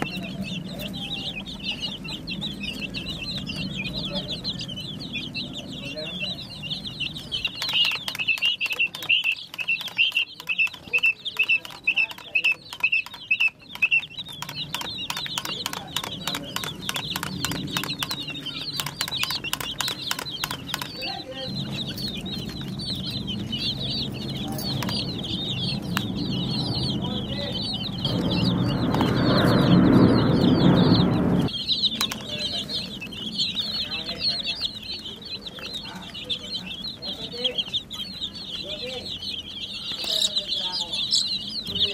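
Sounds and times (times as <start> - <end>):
chicks peeping: 0.0 - 41.9
sharp clicks: 7.4 - 21.1
low rushing noise: 25.6 - 31.6.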